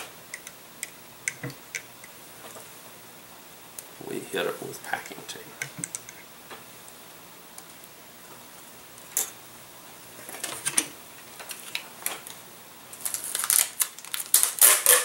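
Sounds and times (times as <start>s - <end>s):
tape dispenser clicking and rustling: 13.0s - 15.0s.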